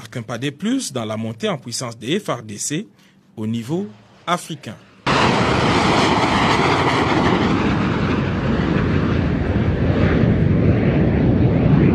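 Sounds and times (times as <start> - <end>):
fighter jets flying past: 3.9 - 11.9.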